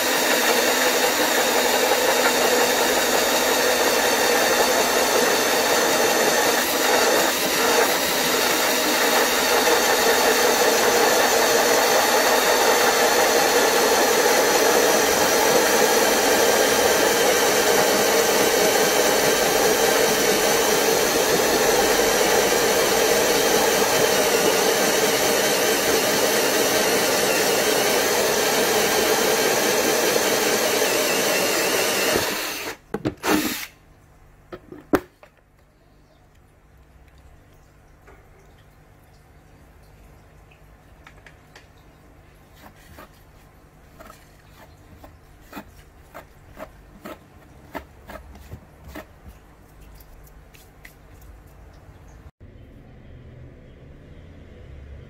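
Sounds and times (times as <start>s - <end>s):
power drill grinding through dish: 0.0s - 33.8s.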